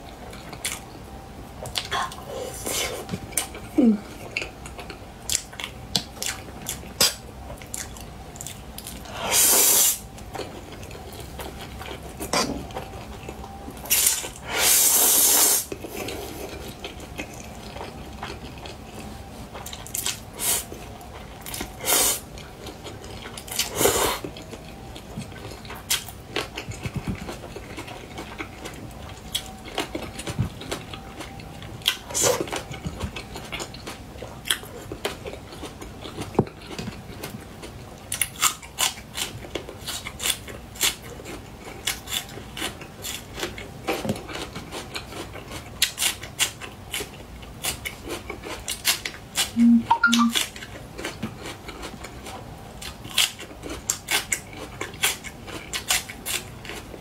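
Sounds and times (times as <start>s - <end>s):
wet chewing and smacking: 0.0s - 2.3s, 2.9s - 9.2s, 10.1s - 14.4s, 15.7s - 57.0s
slurping noodles: 13.9s - 15.7s.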